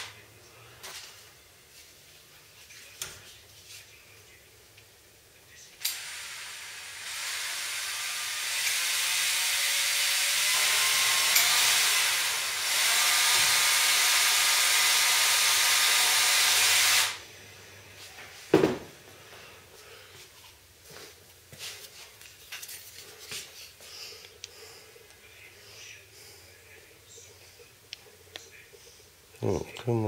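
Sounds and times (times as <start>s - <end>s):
small power drill running: 5.8s - 17.2s.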